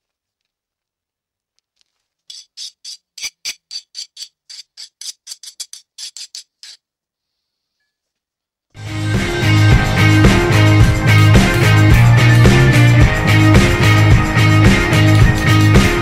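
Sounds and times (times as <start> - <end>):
hand file rasping on steel: 2.3 - 6.8.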